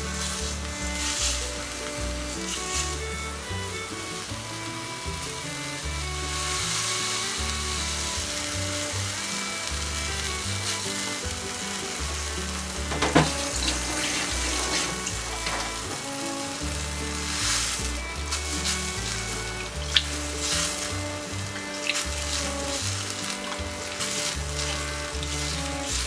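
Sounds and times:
background music: 0.0 - 26.0
liquid hissing and sizzling in oil: 0.0 - 26.0
water poured into pan: 6.3 - 26.0.

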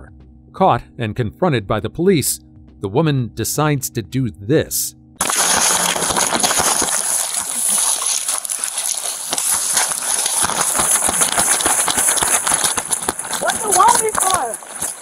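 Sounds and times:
footsteps running through grass: 5.2 - 15.0
grass swishing against clothing: 5.2 - 15.0.

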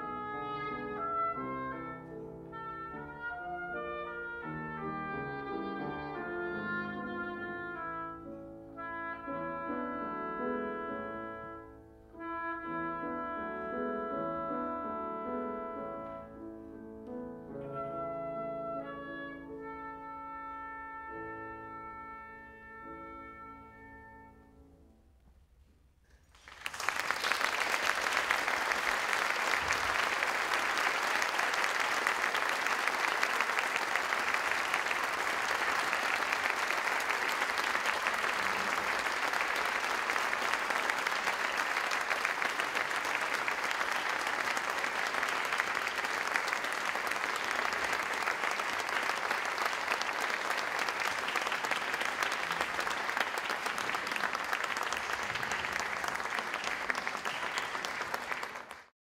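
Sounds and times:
audience applauding: 26.2 - 58.9.

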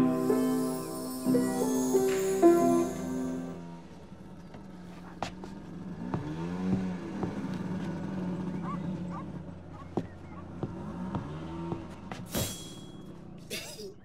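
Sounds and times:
motor scooter engine running: 4.1 - 12.3.

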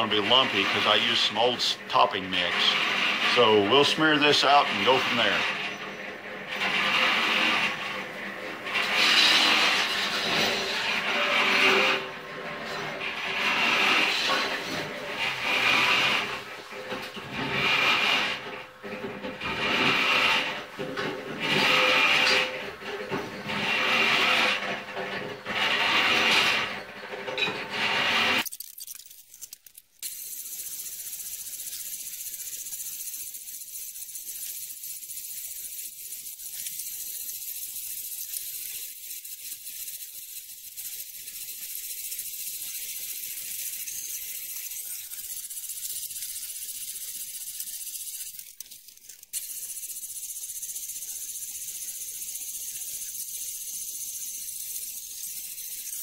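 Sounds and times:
concrete mixer motor humming: 0.0 - 28.5.

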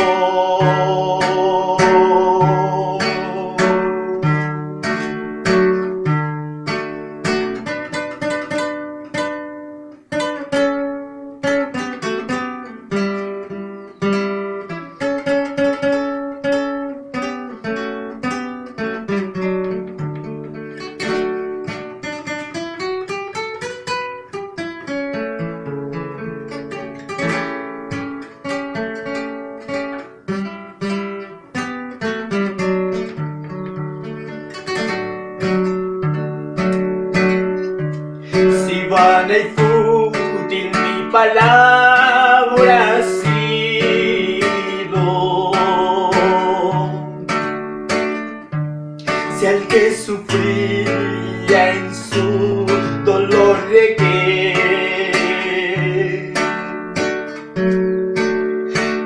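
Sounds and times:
man singing with vibrato: 0.0 - 4.5, 38.2 - 47.4, 49.1 - 56.8
classical guitar fingerstyle: 0.0 - 59.0.

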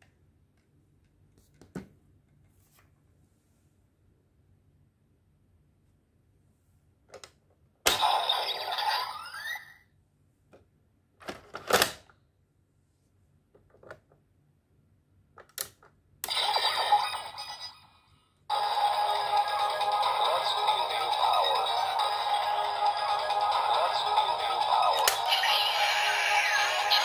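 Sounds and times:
electronic toy sound effects: 7.9 - 9.9, 16.2 - 27.0.

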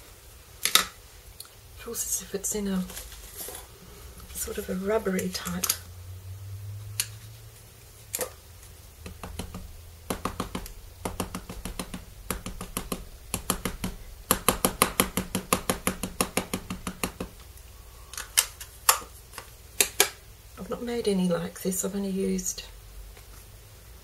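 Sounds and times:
rubber stamp tapping on ink pad: 9.0 - 17.4.

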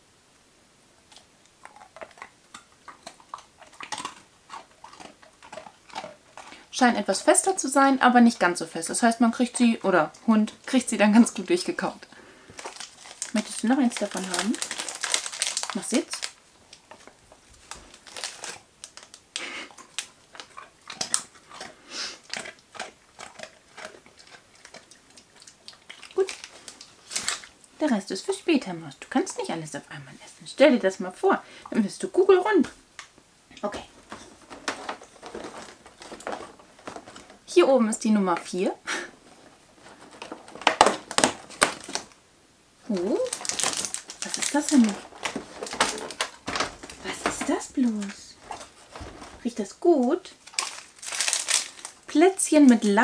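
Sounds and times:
dog crunching biscuit: 1.1 - 11.8, 12.5 - 27.6, 34.0 - 37.5, 39.2 - 42.2, 42.9 - 49.5, 50.3 - 52.9.

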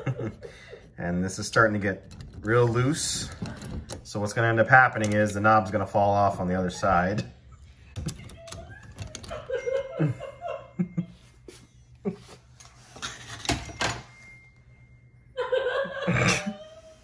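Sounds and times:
metal doorknob clicking and knocking: 1.7 - 4.2, 4.9 - 5.8, 7.9 - 9.5.

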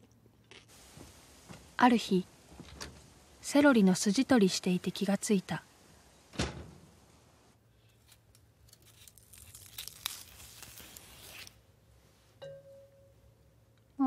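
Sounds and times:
celery strings tearing: 7.9 - 11.6
celery snapping: 8.1 - 11.5.

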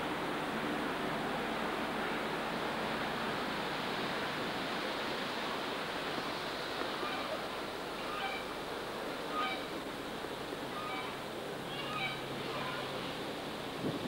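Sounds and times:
wind rushing through leaves: 0.0 - 14.0.

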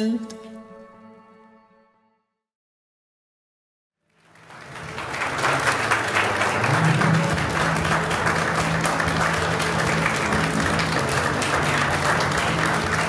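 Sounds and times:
people clapping: 4.0 - 13.0.

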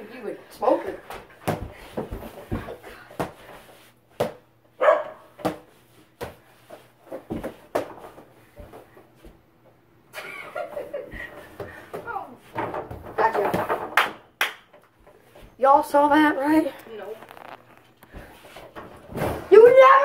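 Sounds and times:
feet moving on hardwood floor: 1.0 - 9.5, 16.9 - 19.4.

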